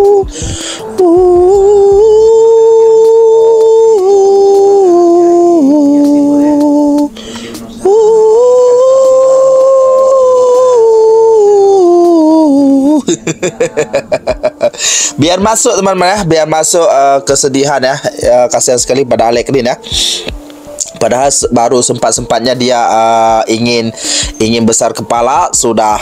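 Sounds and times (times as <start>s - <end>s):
slow melody of long held notes: 0.0s - 15.2s.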